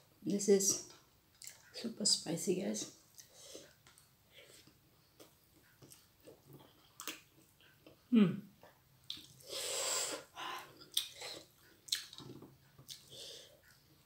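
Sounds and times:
chewing and lip clicks: 0:00.9 - 0:01.8, 0:03.1 - 0:09.5, 0:10.5 - 0:14.0
hissing breath through mouth: 0:09.4 - 0:10.5.

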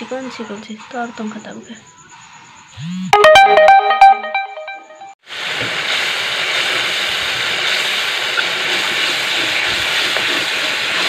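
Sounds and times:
electronic tones: 0:03.2 - 0:05.1.

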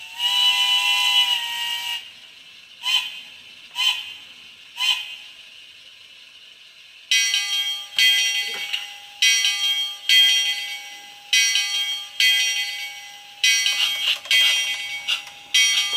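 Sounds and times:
locomotive bell ringing from small speaker: 0:07.1 - 0:15.9.

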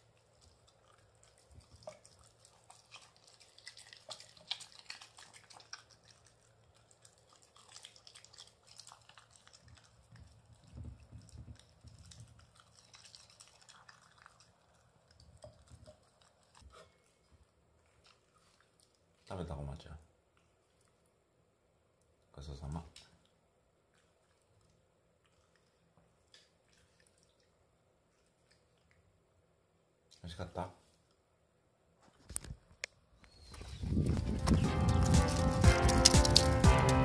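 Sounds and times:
dog chewing and licking: 0:00.0 - 0:19.4, 0:23.2 - 0:29.1, 0:33.6 - 0:37.0.

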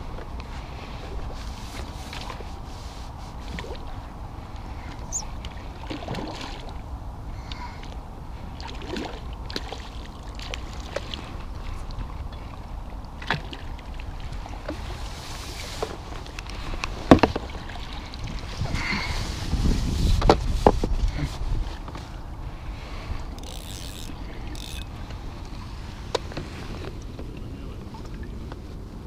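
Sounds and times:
water sloshing and splashing: 0:00.1 - 0:28.8.

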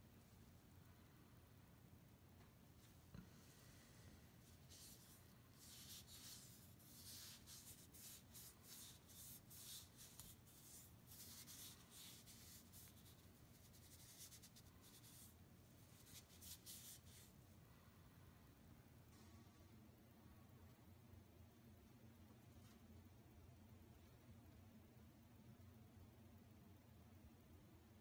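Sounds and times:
cloth rag rubbing wood: 0:04.5 - 0:15.3, 0:15.9 - 0:17.3.

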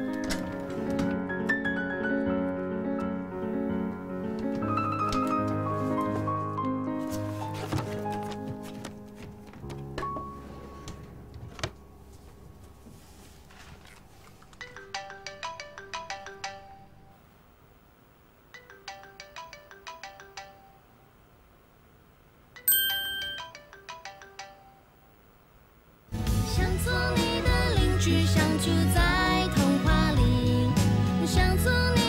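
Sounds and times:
phone melodic ringtone: 0:18.6 - 0:20.8, 0:22.6 - 0:24.8.

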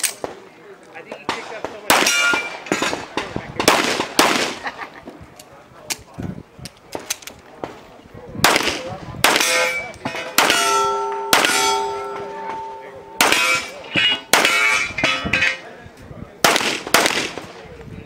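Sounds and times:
pistol shots: 0:01.2 - 0:04.6, 0:08.4 - 0:15.4, 0:16.4 - 0:17.5
metallic ring of steel targets: 0:02.0 - 0:02.9, 0:09.4 - 0:15.7.

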